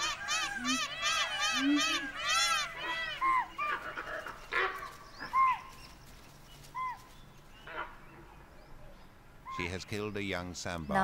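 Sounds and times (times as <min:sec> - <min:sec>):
rising and falling animal calls: 0:00.0 - 0:05.7.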